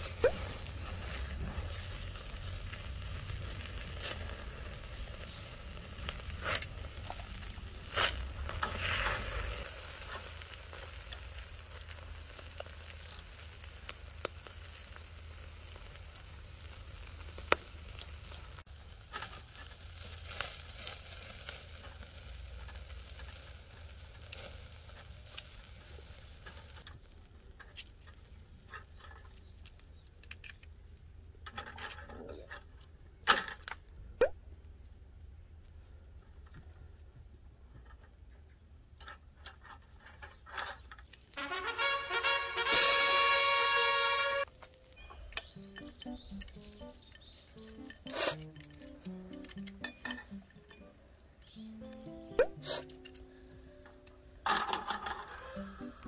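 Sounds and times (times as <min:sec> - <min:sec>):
meat sizzling on a grill: 0:00.0 - 0:28.6, 0:41.1 - 0:49.7
metal tongs clicking on grill: 0:10.3 - 0:11.3, 0:22.5 - 0:24.6, 0:45.3 - 0:51.6.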